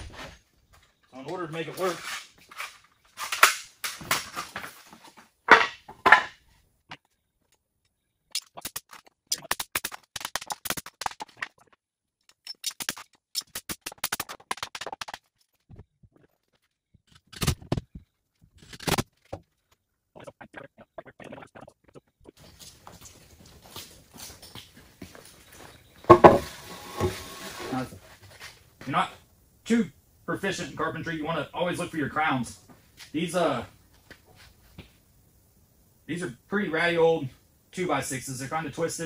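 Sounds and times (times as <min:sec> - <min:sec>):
hammer striking boards: 0:26.1 - 0:27.1.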